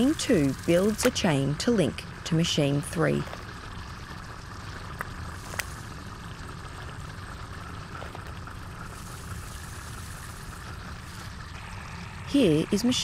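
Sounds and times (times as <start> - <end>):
low ambient drone: 0.0 - 13.0.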